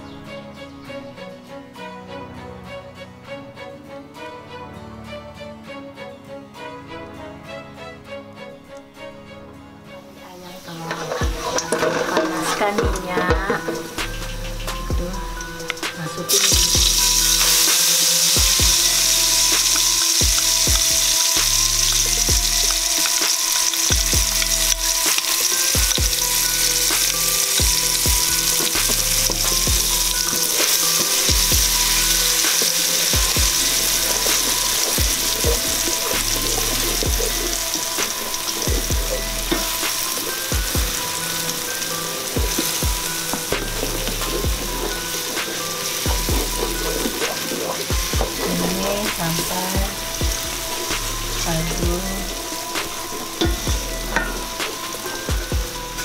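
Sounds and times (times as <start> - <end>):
wooden spatula scraping pot: 10.5 - 14.9
spice paste sizzling in oil: 10.5 - 56.0.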